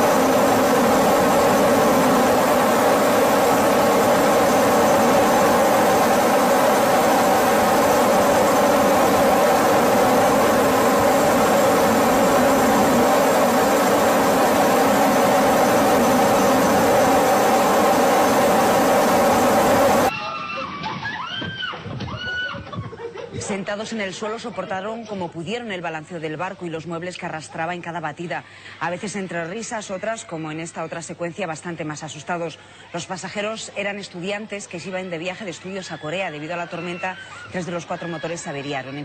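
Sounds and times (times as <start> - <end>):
aircraft engine droning: 0.0 - 20.1
faint high whine: 0.0 - 20.1.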